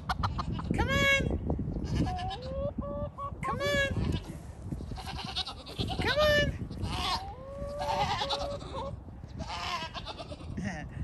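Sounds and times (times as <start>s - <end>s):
goats bleating: 6.8s - 8.8s, 9.4s - 10.6s.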